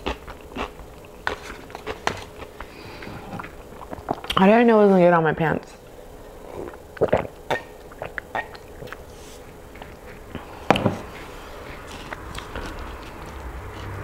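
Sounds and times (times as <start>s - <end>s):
person gulping a drink: 3.2s - 4.4s, 6.6s - 9.0s.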